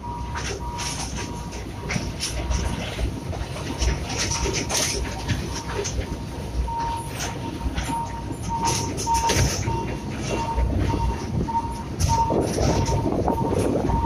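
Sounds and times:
train rumbling and wheels clacking: 0.0 - 14.0
short electronic beeps: 5.4 - 14.0.

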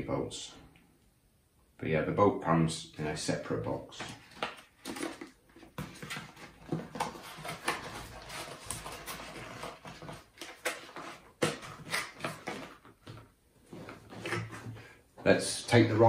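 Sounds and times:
cardboard box rustling: 4.2 - 14.9.

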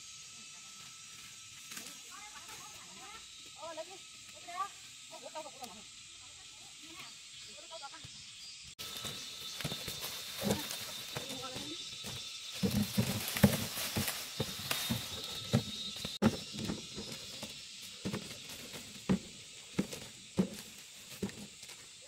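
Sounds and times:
corn ears knocking into baskets: 8.9 - 21.7.

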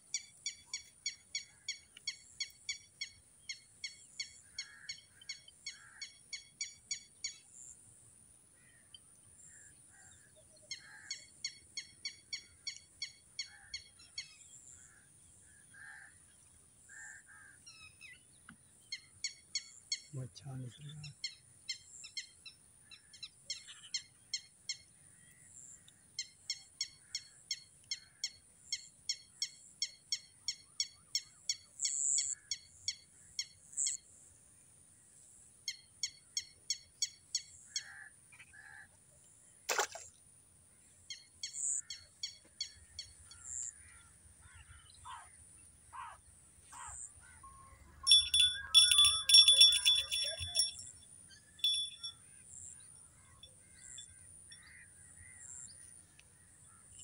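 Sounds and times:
bird calling: 41.4 - 52.2
rapid bird chirping: 46.8 - 52.2.

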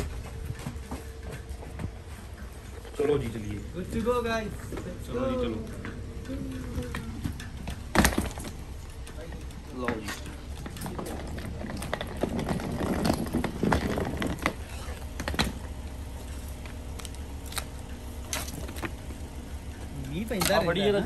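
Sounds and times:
suitcase wheels rattling: 0.0 - 21.0
luggage clicks and knocks: 5.8 - 16.9.

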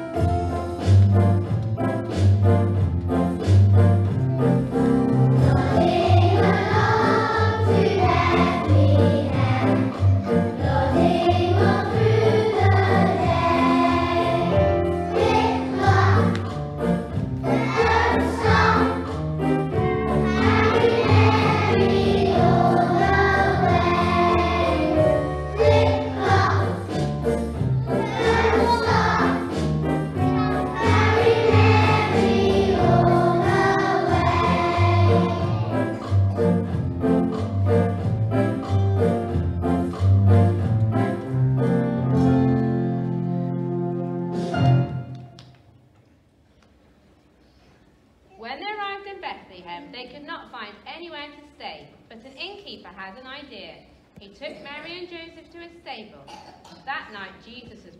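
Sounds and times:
children singing together: 5.4 - 16.4, 17.4 - 19.1, 20.2 - 27.1, 27.8 - 29.7, 30.4 - 36.0.

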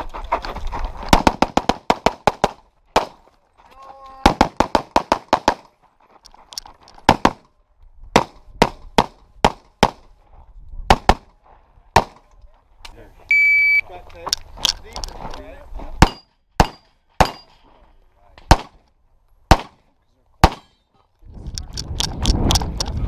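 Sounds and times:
handgun shots: 16.0 - 17.5, 19.5 - 19.8, 20.4 - 20.8.

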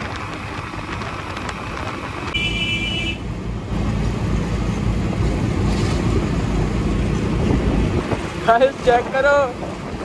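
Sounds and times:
wind noise: 0.0 - 3.1, 4.6 - 10.0
motorcycle road rumble: 0.0 - 10.0
vehicle horn honk: 2.3 - 3.3.

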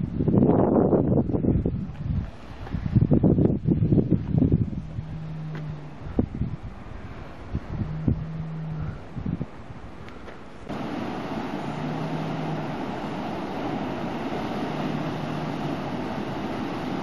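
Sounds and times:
wind buffeting microphone: 0.0 - 17.0
ocean surf breaking over rocks: 10.5 - 17.0.

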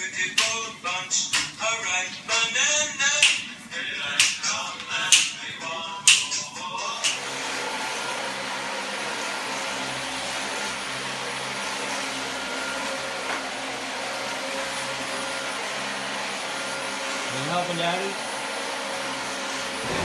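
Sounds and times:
vacuum cleaner motor: 6.8 - 20.0.

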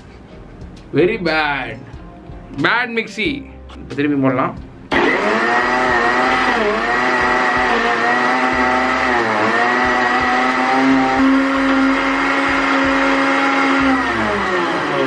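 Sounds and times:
mixer grinder motor running: 4.9 - 15.0.

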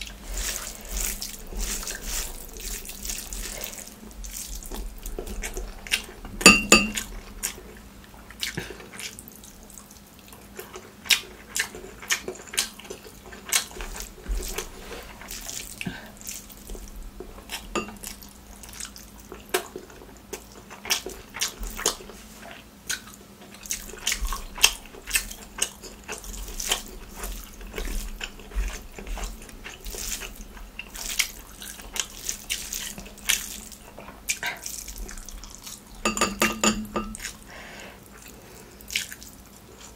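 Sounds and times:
wet chewing and lip smacks: 38.1 - 39.9.

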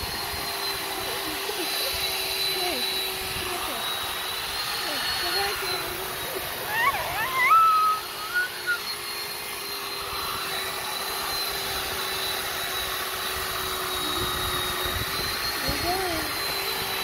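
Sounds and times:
electric chainsaw whining: 0.0 - 17.0
toddler squealing with laughter: 4.8 - 9.1.

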